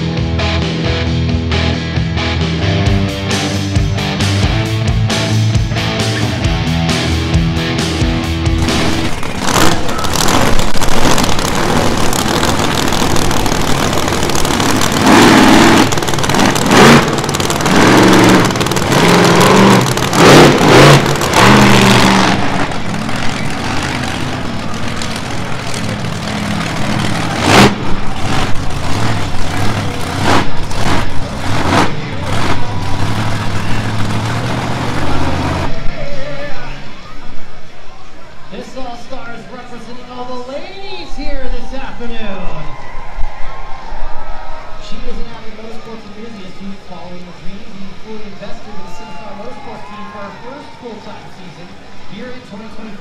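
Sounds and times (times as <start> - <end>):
monster truck engine revving: 0.0 - 35.9.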